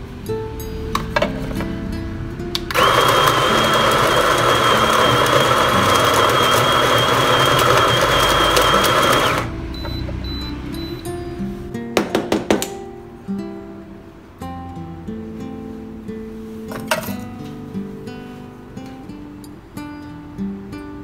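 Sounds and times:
electric coffee grinder grinding: 2.7s - 9.5s.

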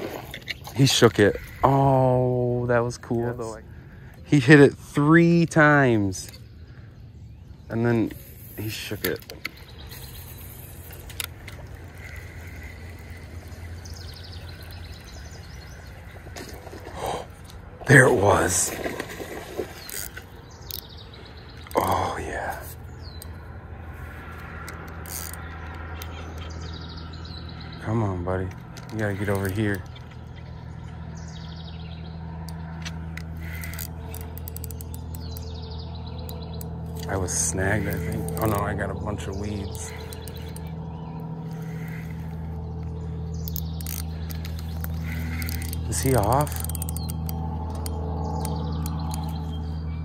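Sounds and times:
low riverside rumble: 0.0s - 50.0s
fishing reel whirring and ticking: 7.7s - 16.4s, 19.1s - 20.9s, 23.2s - 27.5s, 28.7s - 30.6s, 32.1s - 49.9s
light clicks: 41.5s - 49.7s.

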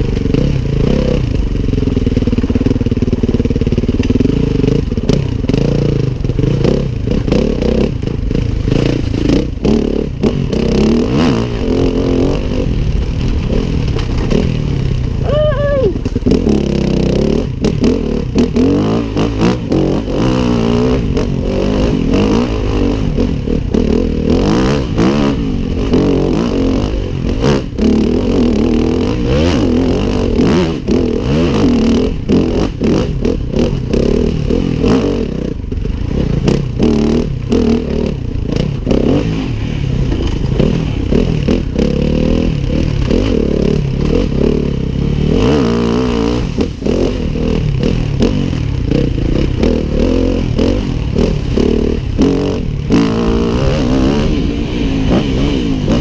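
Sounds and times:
motorcycle engine revving: 0.0s - 56.0s
bike clattering over bumps: 12.9s - 15.2s.

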